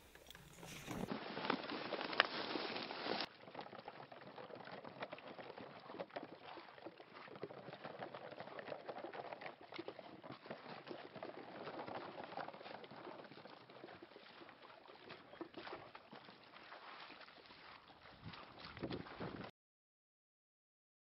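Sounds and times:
waders sloshing through water: 0:02.5 - 0:19.5.

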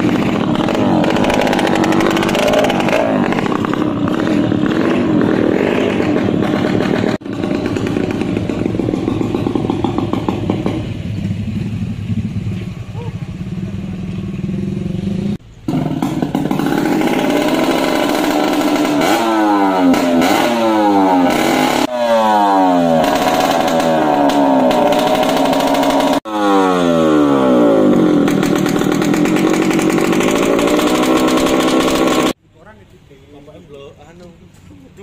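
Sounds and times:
motorcycle engine revving: 0:00.0 - 0:32.4.

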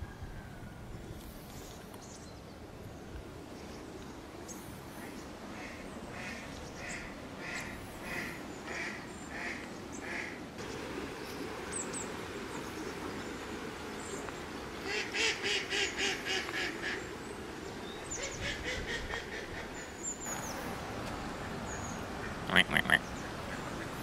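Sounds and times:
duck quacking: 0:22.2 - 0:23.9.

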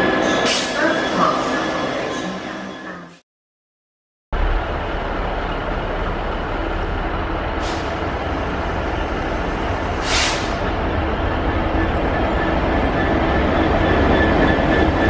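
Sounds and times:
diesel locomotive engine throbbing: 0:04.4 - 0:15.0
air hisses: 0:10.0 - 0:10.6.

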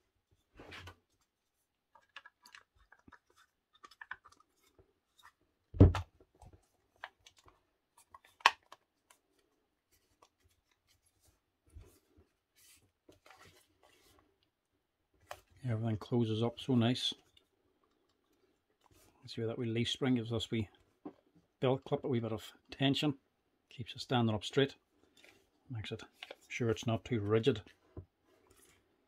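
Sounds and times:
plastic housing clicks and rustles: 0:01.9 - 0:09.4.

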